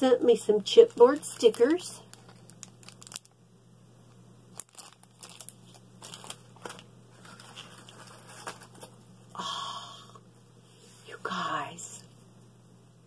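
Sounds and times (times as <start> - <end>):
plastic packaging crinkling: 0.6 - 3.4, 4.5 - 9.1.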